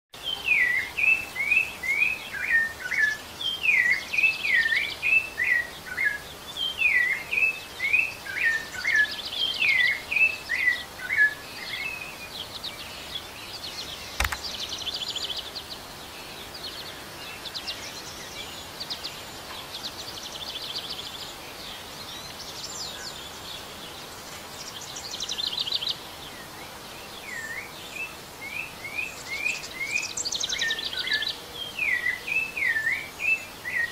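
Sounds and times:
sharp click: 14.2s - 14.5s.

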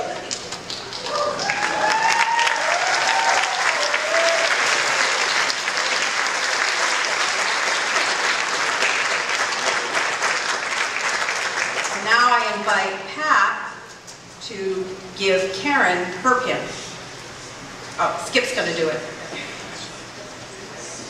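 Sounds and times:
audience applauding: 0.1s - 12.0s
voices over clapping: 0.2s - 12.0s.

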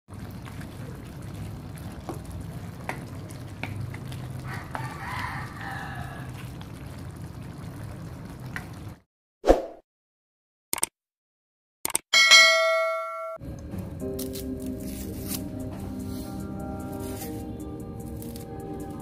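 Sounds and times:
food simmering in pan: 0.1s - 9.0s
rooster crowing: 4.4s - 6.4s.

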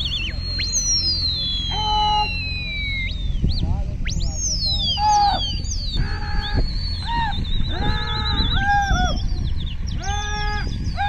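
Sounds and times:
short hooting bird calls: 0.0s - 3.3s
high falling bird whistles: 0.0s - 9.3s
wavering high bird trill: 0.0s - 11.0s
wind on microphone: 0.0s - 11.0s.

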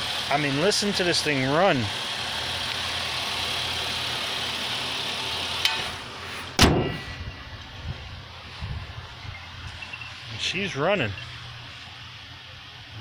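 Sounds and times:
car engine idling: 0.0s - 13.0s
car hood slamming shut: 6.6s - 7.2s.

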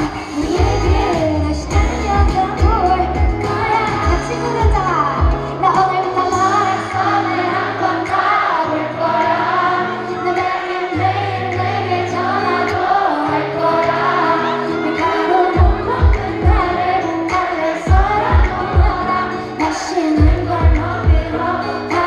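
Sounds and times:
pop backing track: 0.0s - 22.0s
woman singing into microphone: 0.0s - 22.0s
bass drum beats: 0.4s - 5.5s, 15.6s - 19.1s, 20.2s - 21.4s.

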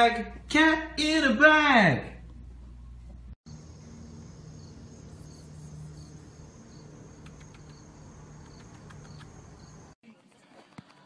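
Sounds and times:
insects trilling and chirping: 3.5s - 10.0s.

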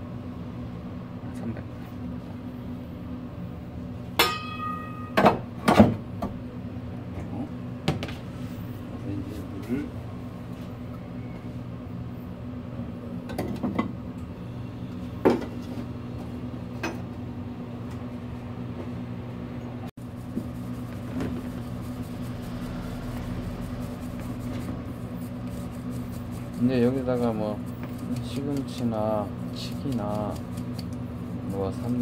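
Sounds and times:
electric mill motor hum: 20.4s - 31.8s.

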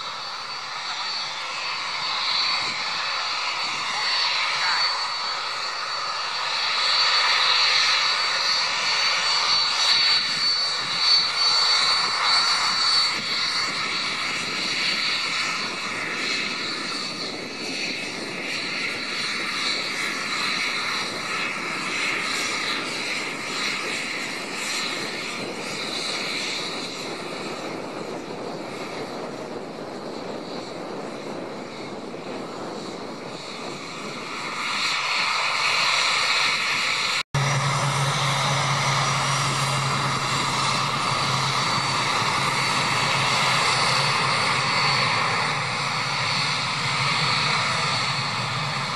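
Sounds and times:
jet engines whining: 0.0s - 48.9s.

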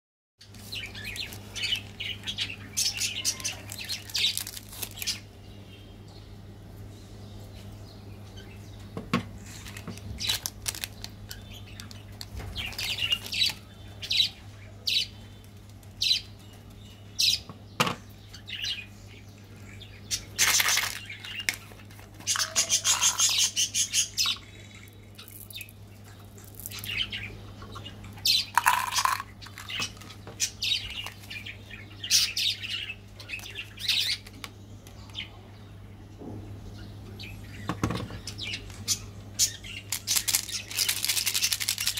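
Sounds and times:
low steady hum: 0.4s - 41.9s
plastic wrappers crinkling: 0.5s - 5.2s, 9.4s - 13.7s, 20.4s - 23.6s, 28.6s - 30.2s, 39.9s - 41.9s.

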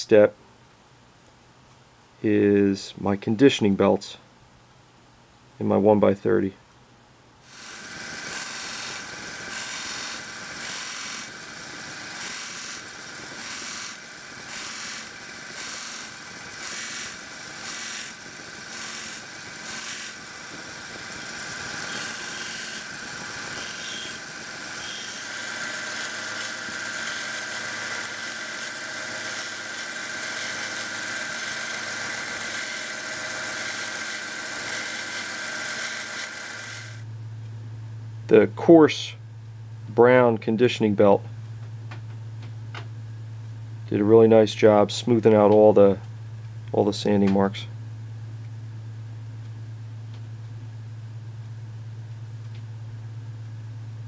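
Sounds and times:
blade rasping on sanding belt: 7.5s - 37.0s
belt sander motor whine: 7.5s - 37.1s.

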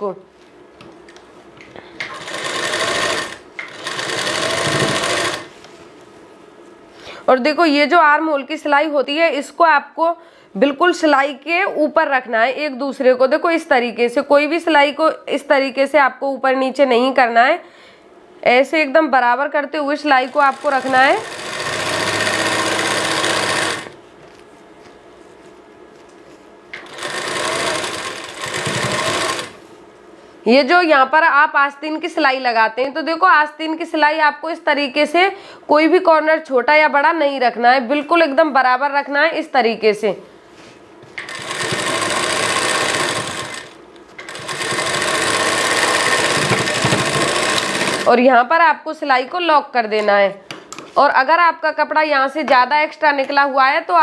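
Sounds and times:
sewing machine stitching: 2.1s - 5.5s, 20.2s - 24.0s, 26.8s - 29.6s, 41.2s - 48.2s.

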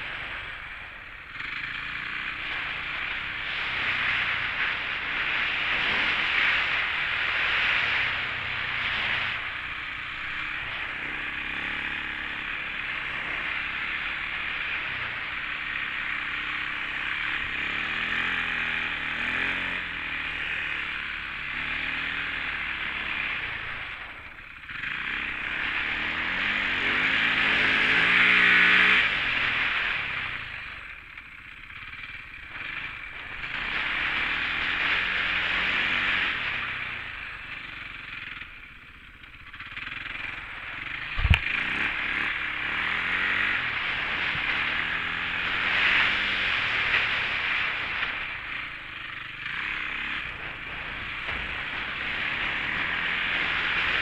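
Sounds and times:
motorcycle engine revving: 0.0s - 54.0s
wind rushing over microphone: 41.0s - 42.2s.

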